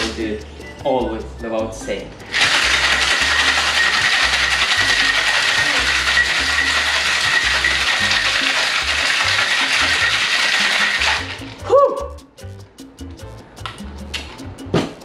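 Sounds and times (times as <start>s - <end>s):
background music with low bass line: 0.0s - 15.0s
held high tone: 11.6s - 12.4s.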